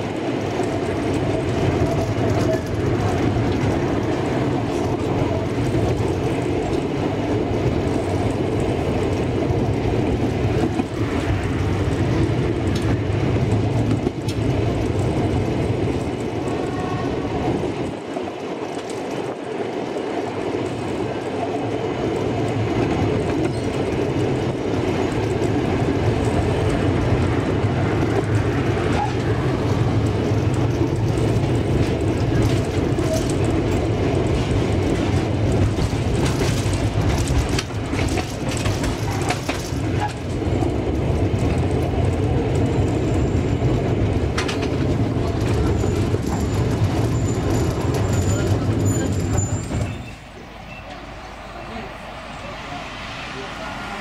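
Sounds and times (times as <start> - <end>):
clicks and knocks of train: 0.0 - 54.0
train wheels rumbling on rail: 0.0 - 54.0.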